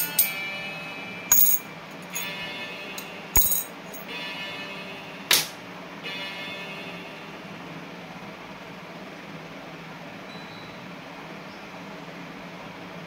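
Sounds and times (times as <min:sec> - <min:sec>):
metal coins clinking: 0:00.0 - 0:00.4, 0:01.3 - 0:02.3, 0:03.0 - 0:04.0.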